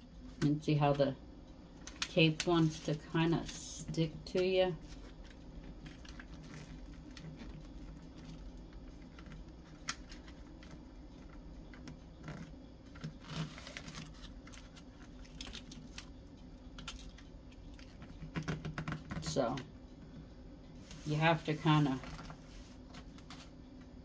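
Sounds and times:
wrapping paper rustling and crinkling: 0:04.8 - 0:11.4, 0:12.2 - 0:16.1.

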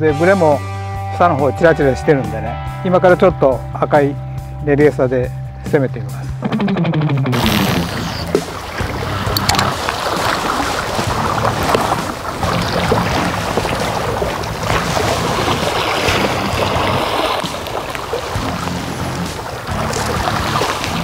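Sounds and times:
seawater washing against rocks: 0:07.4 - 0:21.0
wind buffeting microphone: 0:07.9 - 0:21.0.

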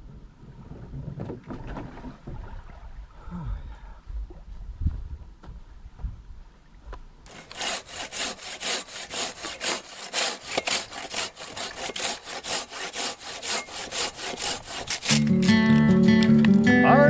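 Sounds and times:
hand saw cutting hardwood: 0:07.3 - 0:15.8.

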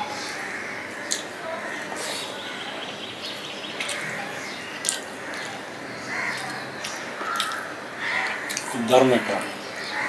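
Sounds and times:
close chewing and mouth sounds: 0:01.0 - 0:01.4, 0:03.7 - 0:08.8.

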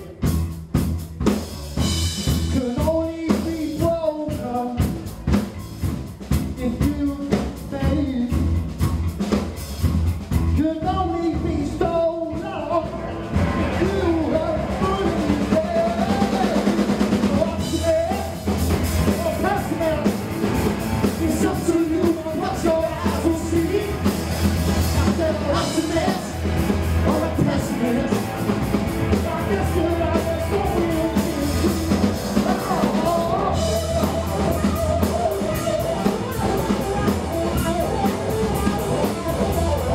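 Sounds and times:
drum kit: 0:00.0 - 0:39.9
person singing: 0:02.4 - 0:04.9, 0:10.6 - 0:20.2, 0:21.0 - 0:24.1, 0:24.8 - 0:39.9
distorted electric guitars: 0:12.4 - 0:39.9.

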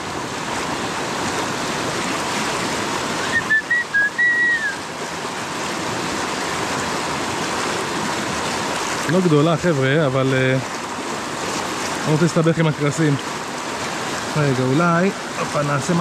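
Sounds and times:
river water rushing: 0:00.0 - 0:16.0
high whistle-like notes: 0:03.2 - 0:04.8.

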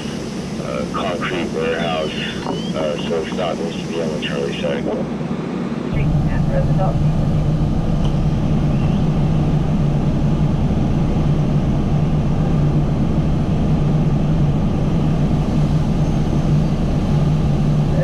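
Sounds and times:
fire engine pump droning: 0:00.0 - 0:05.0.

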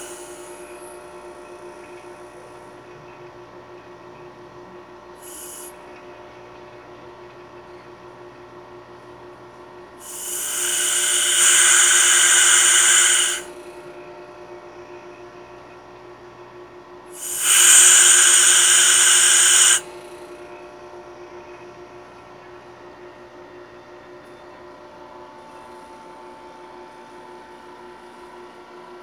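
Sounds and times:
gas hissing into line: 0:00.0 - 0:00.5, 0:05.2 - 0:05.7, 0:10.0 - 0:13.6, 0:17.1 - 0:20.1
steady low hum: 0:00.0 - 0:29.0.

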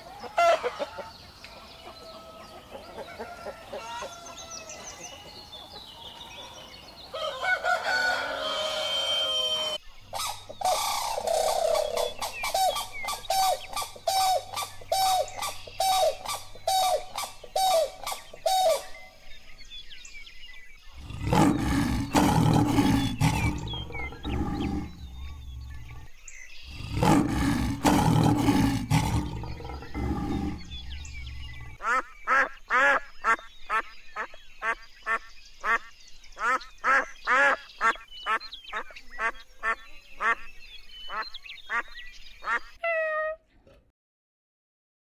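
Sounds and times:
lions growling: 0:20.9 - 0:31.8
bird short calls: 0:42.4 - 0:43.5.

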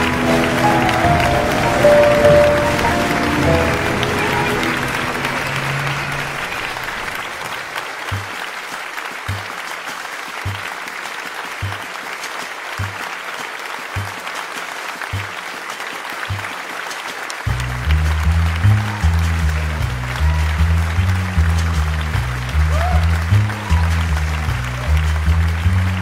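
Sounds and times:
applause: 0:00.0 - 0:26.0
bass-heavy music: 0:17.5 - 0:26.0.

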